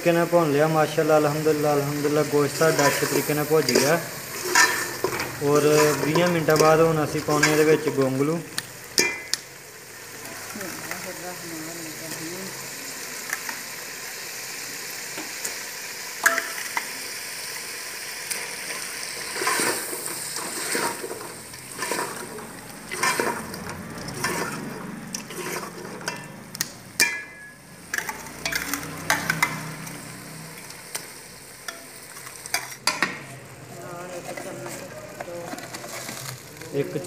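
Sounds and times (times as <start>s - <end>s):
food sizzling in a pot: 0.0s - 37.0s
ladle scraping and knocking pot: 2.7s - 8.1s, 9.0s - 9.4s, 19.3s - 29.6s.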